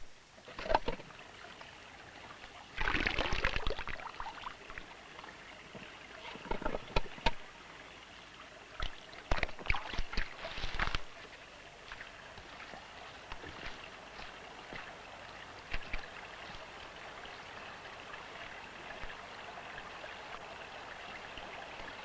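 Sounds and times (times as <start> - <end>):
water splashing: 2.4 - 4.9, 8.8 - 17.0.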